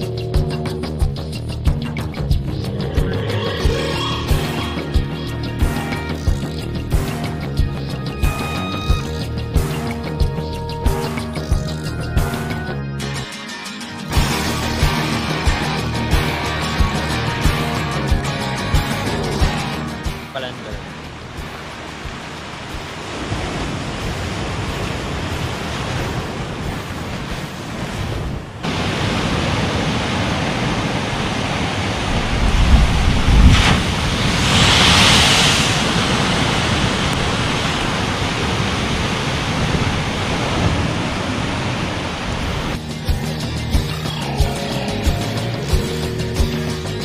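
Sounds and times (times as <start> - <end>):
wave crash: 2.6 - 5.9, 19.0 - 42.8
sea surf breaking against rocks: 19.4 - 42.8
wind rumble on microphone: 20.8 - 42.8.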